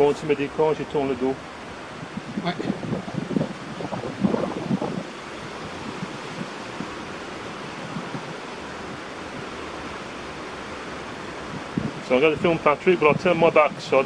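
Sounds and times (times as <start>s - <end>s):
wind rushing: 1.4s - 13.8s.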